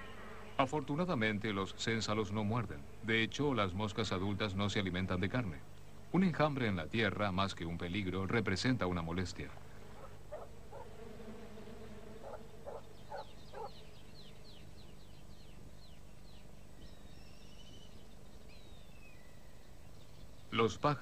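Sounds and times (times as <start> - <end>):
birds chirping: 0.0 - 21.0
low steady hum: 0.0 - 21.0.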